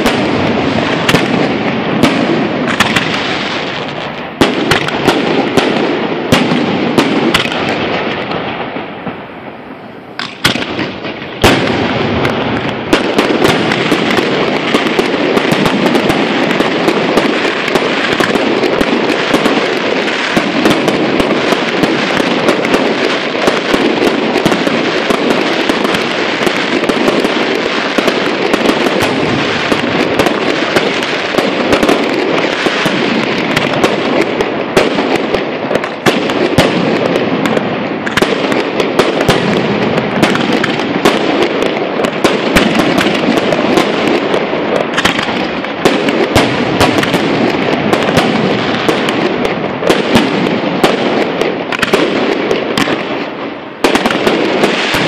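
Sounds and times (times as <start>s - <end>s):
fireworks bursting: 0.0s - 55.0s
fireworks crackling: 0.0s - 55.0s.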